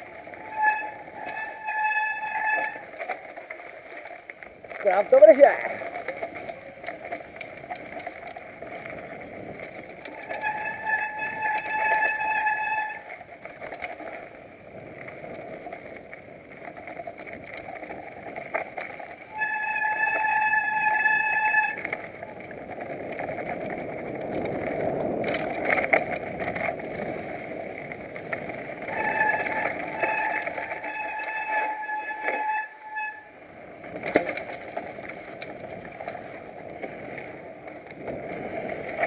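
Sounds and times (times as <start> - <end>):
bike disc brakes squealing: 0.0 - 4.1, 10.1 - 13.2, 18.8 - 22.2, 28.4 - 33.5
bike rattling and knocking: 0.0 - 39.0
tyres rumbling over dirt: 0.0 - 39.0
person talking: 4.8 - 5.8.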